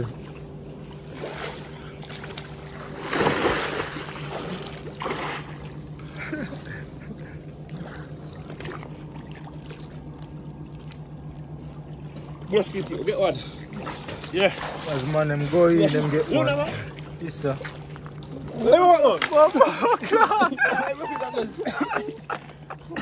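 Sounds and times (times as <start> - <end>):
steady low hum: 0.0 - 23.0
diver splashing into water: 1.2 - 5.8.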